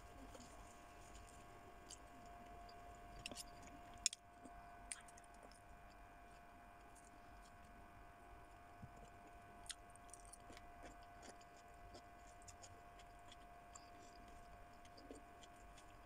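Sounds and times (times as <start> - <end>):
person chewing: 0.0 - 2.3, 3.1 - 5.6, 8.9 - 16.0
faint steady hum: 0.0 - 16.0.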